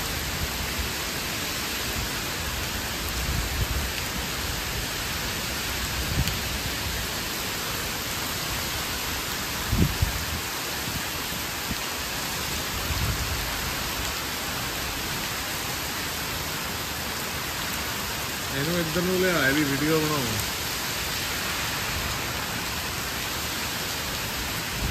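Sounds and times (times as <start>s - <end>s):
heavy rain on trees and pavement: 0.0s - 24.9s.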